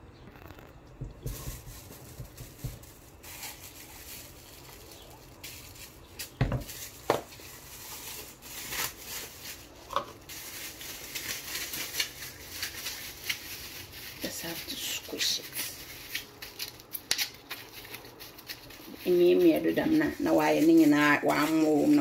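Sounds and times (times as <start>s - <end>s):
rustling handling sounds: 0.5s - 22.0s
wooden spoon scraping a metal pot: 18.9s - 22.0s.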